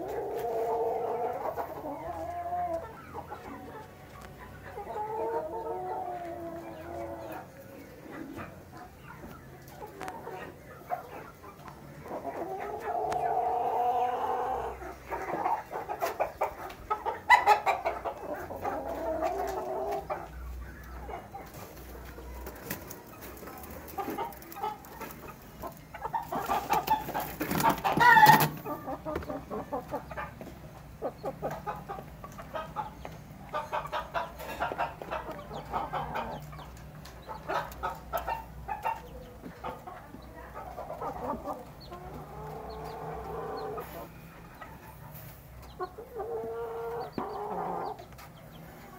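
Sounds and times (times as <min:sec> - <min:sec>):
chickens clucking: 0:00.0 - 0:48.9
chickens pecking taps: 0:18.1 - 0:33.6, 0:34.4 - 0:43.4.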